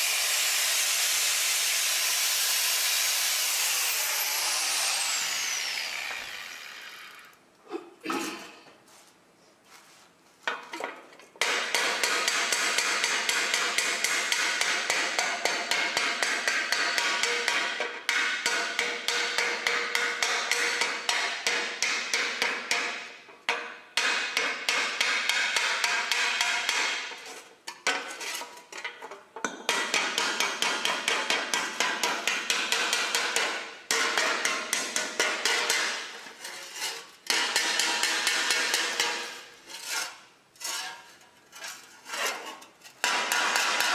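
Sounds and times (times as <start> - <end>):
hammer clanging on steel plate: 11.4 - 28.1, 29.4 - 36.5, 37.3 - 39.5, 43.0 - 43.9.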